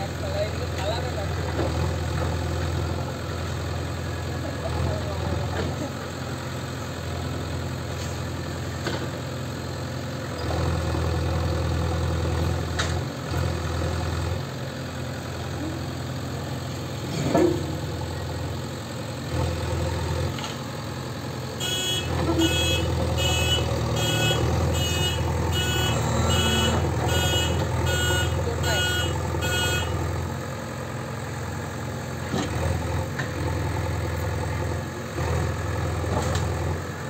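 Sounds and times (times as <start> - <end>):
diesel engine running: 0.0 - 37.0
reversing alarm beeping: 21.6 - 29.9.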